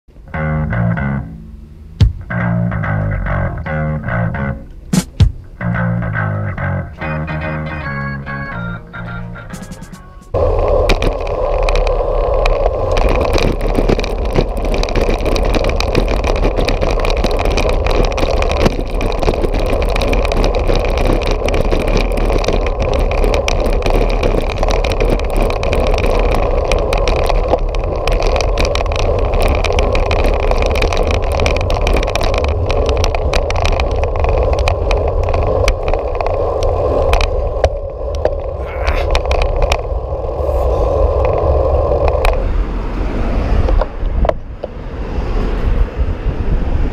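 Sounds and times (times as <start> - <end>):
bicycle tyres rumbling on concrete: 2.0 - 7.0, 9.7 - 46.9
bike rattling over bumps: 2.0 - 7.1, 9.6 - 40.4
wind on microphone: 9.6 - 46.9.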